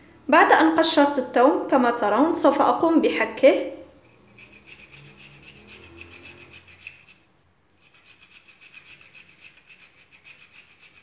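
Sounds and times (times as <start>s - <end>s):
garlic scraping on metal grater: 4.0s - 7.2s, 7.8s - 11.0s.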